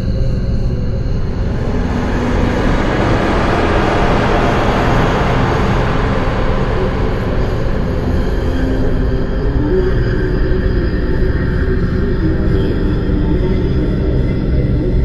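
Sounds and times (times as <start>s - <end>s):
low rumbling drone: 0.0s - 15.0s
hissing wash of noise: 0.6s - 10.7s.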